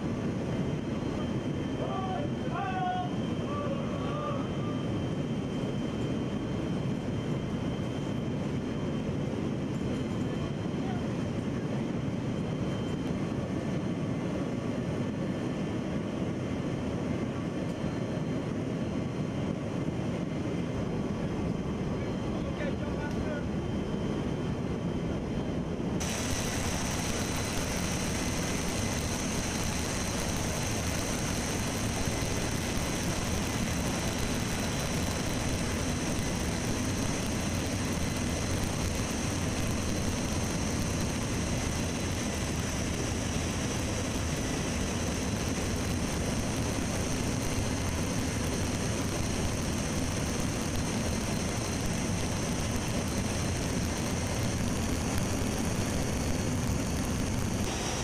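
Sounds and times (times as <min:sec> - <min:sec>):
high steady engine whine: 0:00.0 - 0:58.0
jet engine cabin rumble: 0:00.0 - 0:58.0
rushing air: 0:26.0 - 0:45.6, 0:46.2 - 0:58.0.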